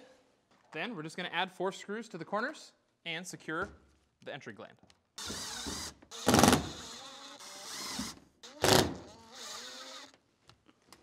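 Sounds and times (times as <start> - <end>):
screw gun motor whining: 5.2 - 10.2.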